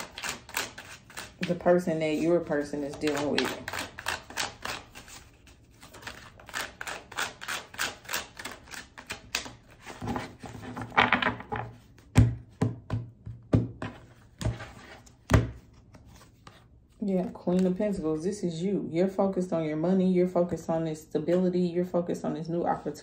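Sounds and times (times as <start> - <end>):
cards thudding on table: 10.0 - 14.6.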